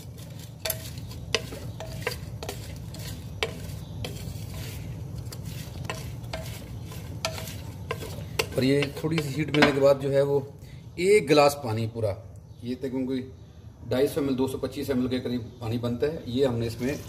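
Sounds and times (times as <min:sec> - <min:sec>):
wooden spatula scraping clay pot: 0:00.0 - 0:09.9.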